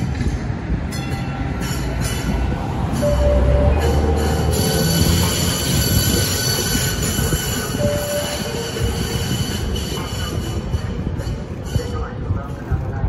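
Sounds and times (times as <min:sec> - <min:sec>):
train low rumble: 0:00.0 - 0:13.0
train wheels squealing: 0:01.0 - 0:12.3.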